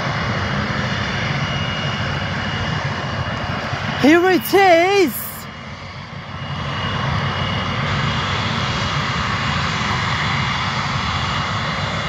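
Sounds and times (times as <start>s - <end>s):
jet engines rushing and rumbling: 5.9s - 12.0s.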